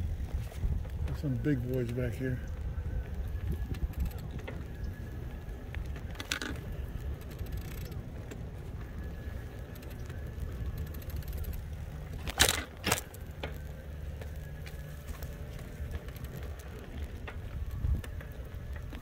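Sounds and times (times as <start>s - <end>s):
low rumble of wind and motion: 0.0s - 19.0s.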